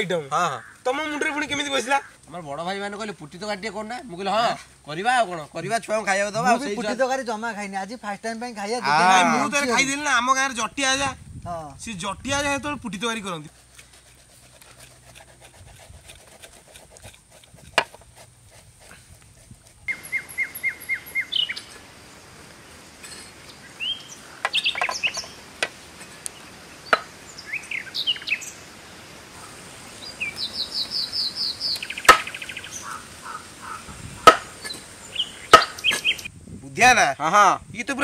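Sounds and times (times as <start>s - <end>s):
birds chirping and trilling: 0.0s - 3.8s, 19.8s - 36.3s
sharp knock: 35.5s - 36.0s.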